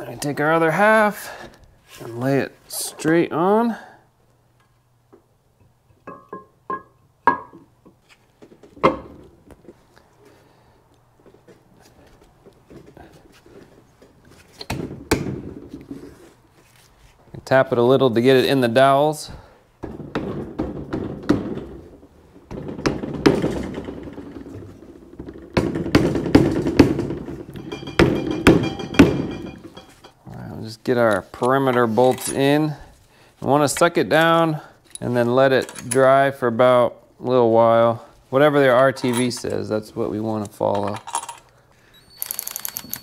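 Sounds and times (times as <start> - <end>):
mallet tapping metal: 27.6 - 30.2
metal knocks with short ring: 27.6 - 30.2.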